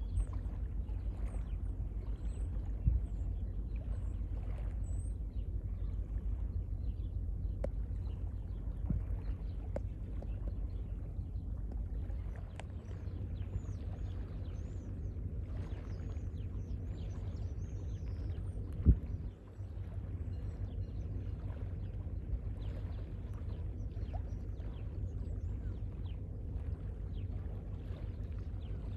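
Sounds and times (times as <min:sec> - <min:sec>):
wind buffeting microphone: 0:00.0 - 0:28.9.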